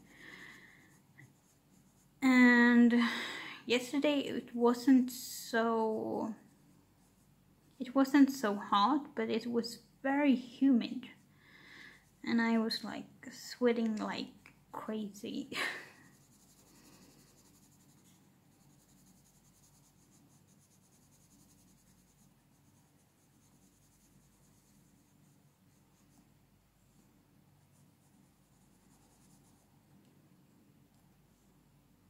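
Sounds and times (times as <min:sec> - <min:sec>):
pencil scratching on paper: 0:00.0 - 0:02.2, 0:15.8 - 0:26.2, 0:27.7 - 0:29.7.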